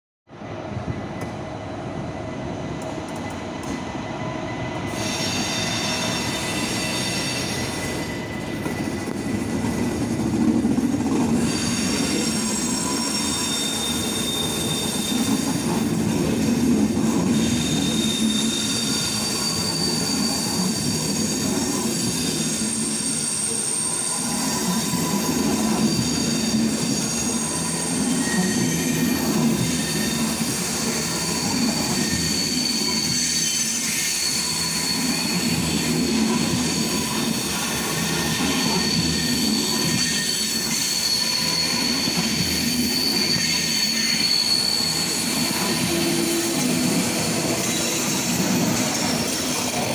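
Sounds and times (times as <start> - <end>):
low pulsing train rumble: 0.3 - 21.8
train wheels squealing: 0.5 - 49.9.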